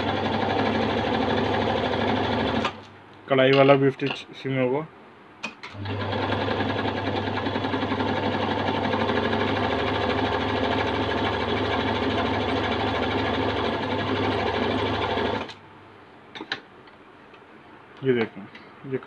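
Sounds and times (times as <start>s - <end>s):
electric sewing machine running: 0.0s - 2.8s, 5.7s - 15.6s.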